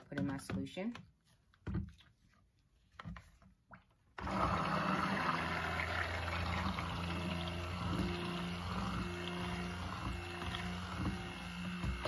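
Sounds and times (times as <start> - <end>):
stick blender whirring: 4.2 - 12.0.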